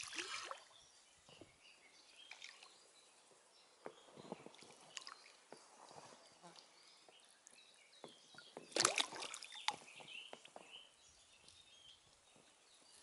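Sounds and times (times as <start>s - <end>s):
oar splashing water: 0.0s - 0.8s, 8.1s - 10.8s.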